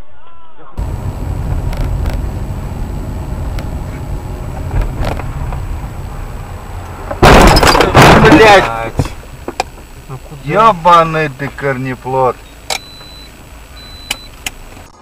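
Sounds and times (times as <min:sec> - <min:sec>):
car road and engine rumble: 0:00.8 - 0:15.0
loud car crash: 0:07.1 - 0:09.2.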